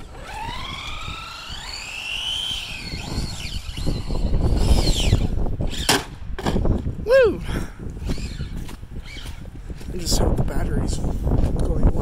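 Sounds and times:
electric motor whining: 0:00.0 - 0:06.0, 0:08.0 - 0:09.5.

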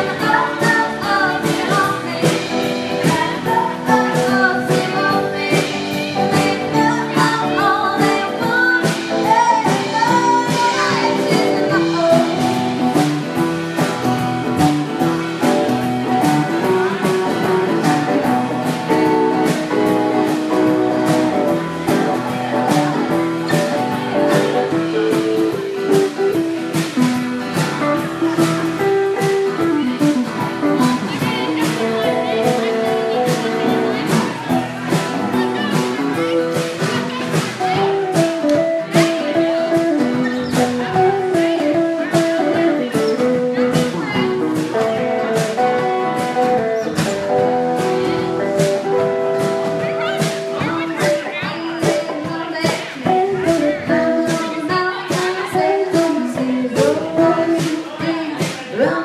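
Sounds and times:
person singing lead vocal: 0:00.0 - 0:13.0, 0:50.7 - 0:59.0
acoustic and electric guitars: 0:00.0 - 0:59.0
steady drum beat: 0:00.0 - 0:59.0.

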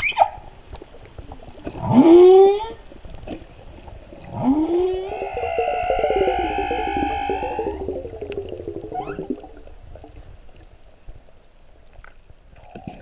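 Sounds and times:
faint water wash: 0:00.5 - 0:13.0
whale song underwater: 0:04.2 - 0:09.8.

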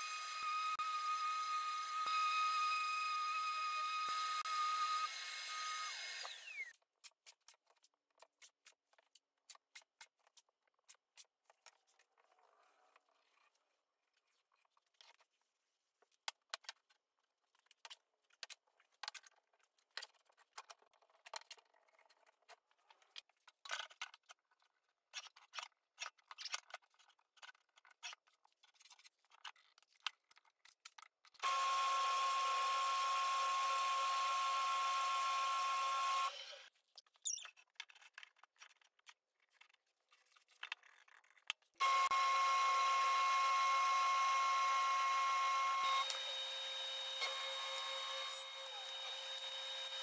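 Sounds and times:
orbital sander whining: 0:31.4 - 0:36.7, 0:41.8 - 0:50.0.

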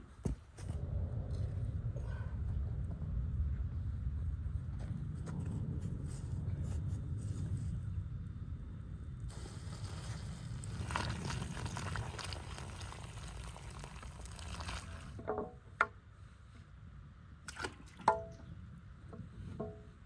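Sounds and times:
water pouring onto ground: 0:09.3 - 0:15.2.

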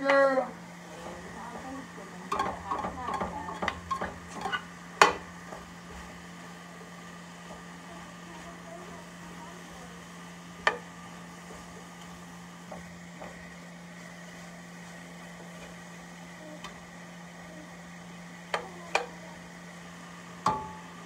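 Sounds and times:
metal spoon knocking on pot: 0:02.3 - 0:05.2.

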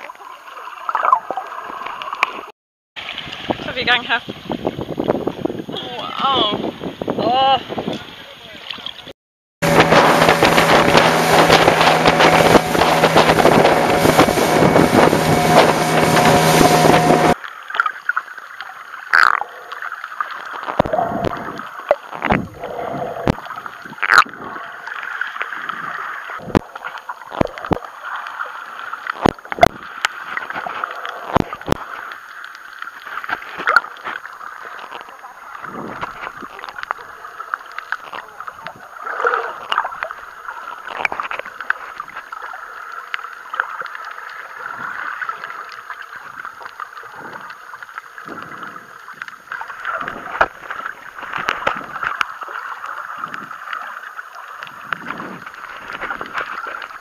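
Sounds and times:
water rushing noise: 0:08.4 - 0:57.0
steady low hum: 0:09.6 - 0:17.4
muffled underwater sound: 0:19.1 - 0:57.0.

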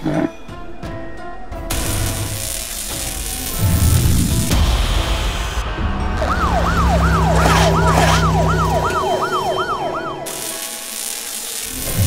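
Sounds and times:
siren yelping: 0:06.0 - 0:10.9.

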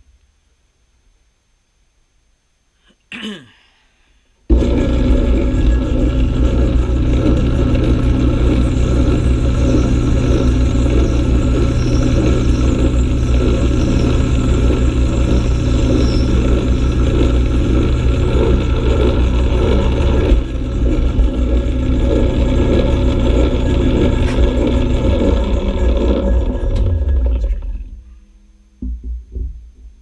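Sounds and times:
lathe tool cutting metal: 0:04.5 - 0:27.7
electric motor humming: 0:04.5 - 0:27.9.

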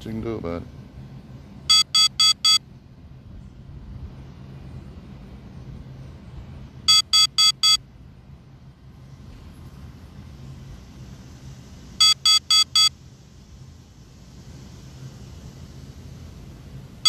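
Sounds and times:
quick electronic beeps: 0:01.7 - 0:02.6, 0:06.9 - 0:07.8, 0:12.0 - 0:12.9.

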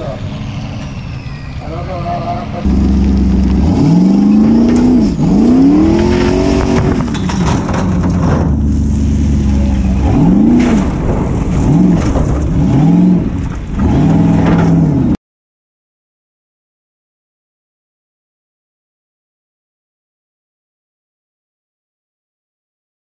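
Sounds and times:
buggy engine revving hard: 0:02.2 - 0:07.2, 0:08.5 - 0:15.2
gravel clattering against car: 0:02.7 - 0:15.2.

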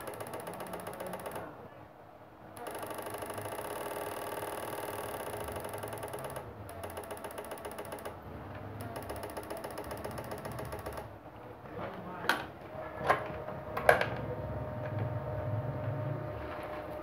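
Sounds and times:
inverter buzzing: 0:02.5 - 0:11.2.

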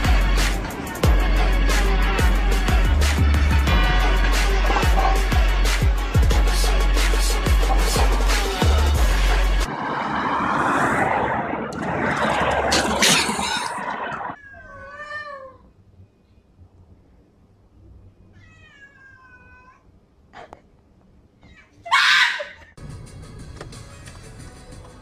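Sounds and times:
cat meowing: 0:14.4 - 0:15.7, 0:18.3 - 0:19.9
cat screeching: 0:18.3 - 0:19.9, 0:21.4 - 0:22.7.

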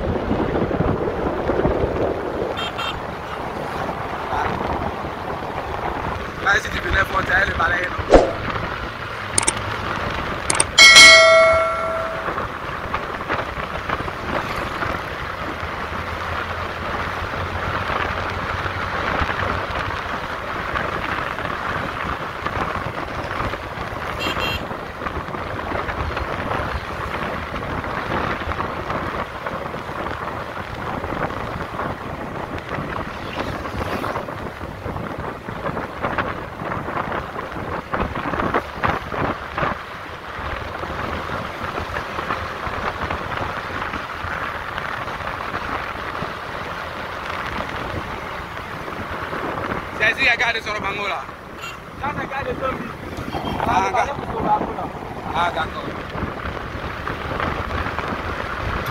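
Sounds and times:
vehicle road and engine noise: 0:00.0 - 0:58.9
ringing tone: 0:10.6 - 0:12.4
wind buffeting microphone: 0:51.4 - 0:58.9.

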